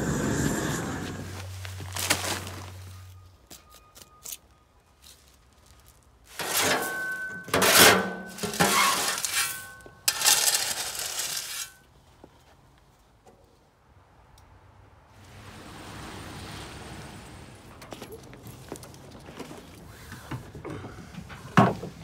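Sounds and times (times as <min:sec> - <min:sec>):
gravel pouring from shovel: 0:07.6 - 0:11.8.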